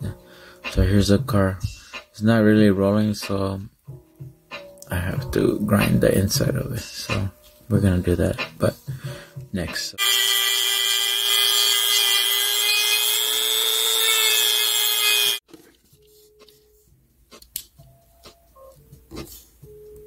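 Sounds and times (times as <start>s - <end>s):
rotary tool grinding metal: 10.0s - 15.4s.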